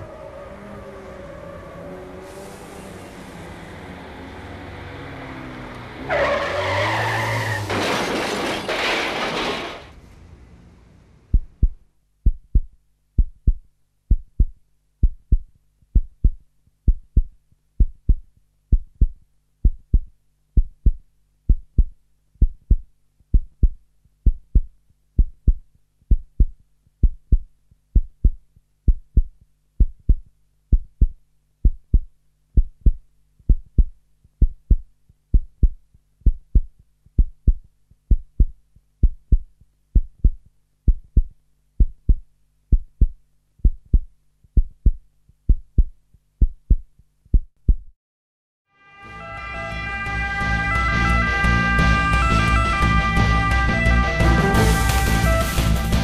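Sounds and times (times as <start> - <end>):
car skid and crash: 6.0 - 10.0
faint low hum: 9.9 - 47.9
heartbeat thumps: 11.3 - 48.0.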